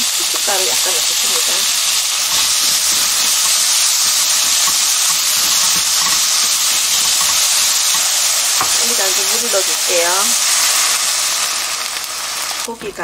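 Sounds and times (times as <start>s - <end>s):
meat and onion sizzling in oil: 0.0s - 13.0s
spatula scraping: 1.3s - 9.7s.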